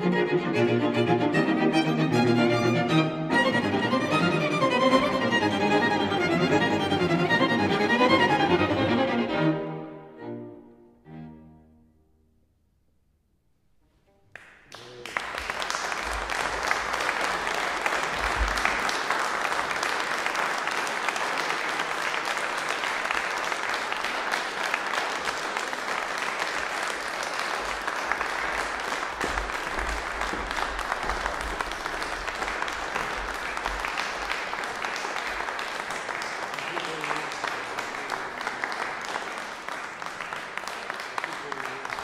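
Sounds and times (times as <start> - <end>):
audience applause: 14.3 - 42.0.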